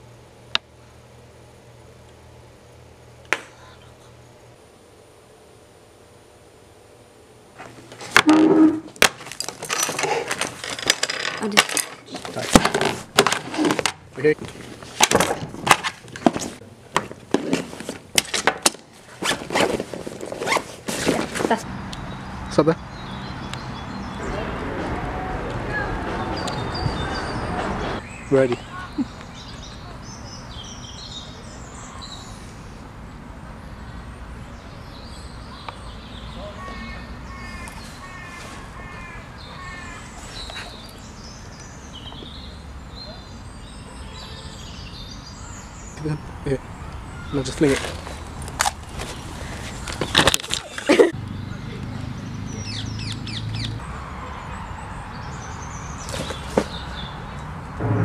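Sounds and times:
bag knocks and clicks: 0:08.2 - 0:14.0
fabric bag rustling: 0:19.0 - 0:21.6
birds calling: 0:21.6 - 0:24.8, 0:25.7 - 0:32.9, 0:33.7 - 0:57.7
low background rumble: 0:57.8 - 0:58.0.

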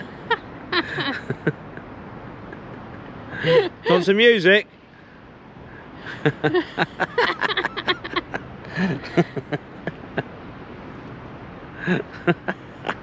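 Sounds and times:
outdoor background hiss: 0:00.0 - 0:13.0
people's voices: 0:00.7 - 0:01.5, 0:03.3 - 0:04.5, 0:06.0 - 0:09.6.

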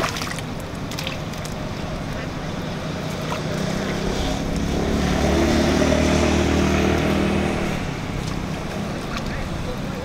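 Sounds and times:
vehicle engine passing by: 0:02.5 - 0:10.0.

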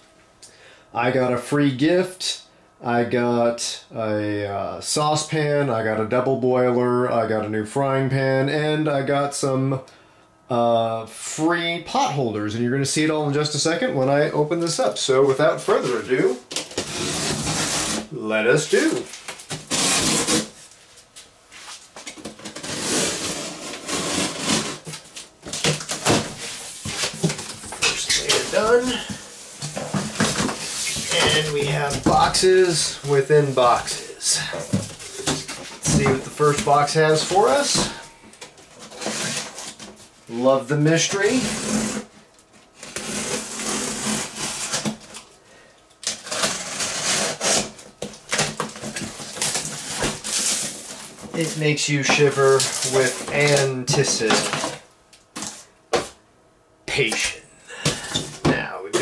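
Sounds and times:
cardboard flaps scraping: 0:15.4 - 0:18.1, 0:21.5 - 0:38.0, 0:46.2 - 0:54.8
knife slitting packing tape: 0:19.5 - 0:20.6, 0:22.5 - 0:25.0, 0:46.0 - 0:48.8.

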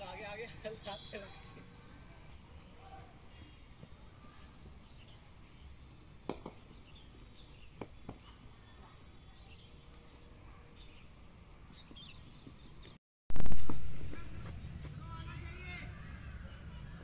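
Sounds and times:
birds chirping: 0:00.0 - 0:13.0
cricket ball knocks: 0:06.3 - 0:06.6.

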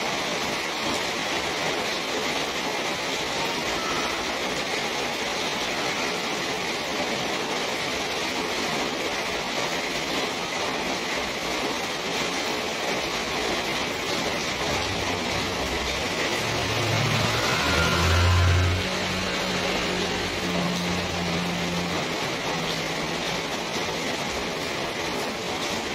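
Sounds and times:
steady rain falling: 0:00.0 - 0:25.9
vehicle engine hum: 0:13.4 - 0:24.8.

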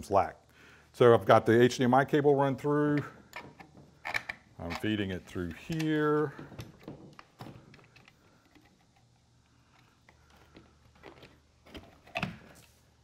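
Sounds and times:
cable handling clicks and rustles: 0:02.7 - 0:13.0.

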